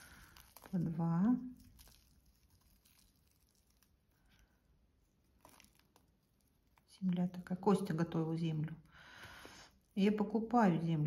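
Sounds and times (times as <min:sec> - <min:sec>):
fingers rustling in moist soil: 0:00.0 - 0:07.6.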